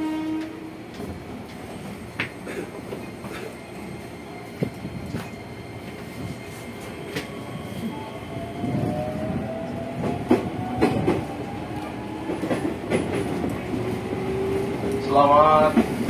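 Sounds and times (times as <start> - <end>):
train running rumble: 8.6 - 16.0.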